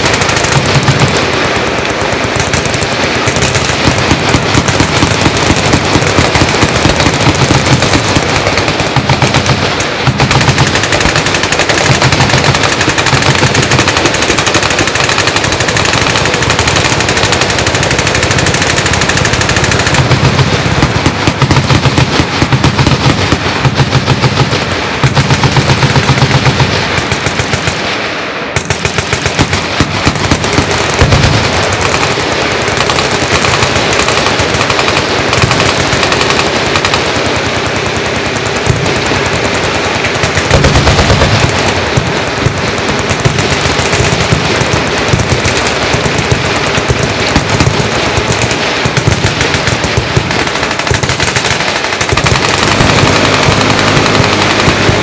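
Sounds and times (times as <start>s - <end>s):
automatic gunfire: 0.0s - 55.0s.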